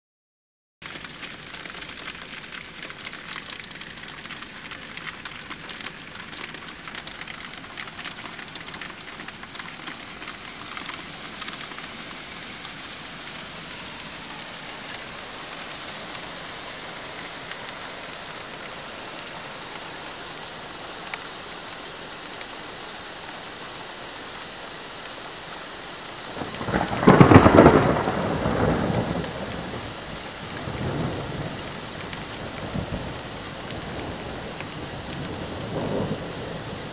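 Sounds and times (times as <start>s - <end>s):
heavy rain and hail on window: 0.8s - 36.9s
thunder rumbling: 26.4s - 36.9s.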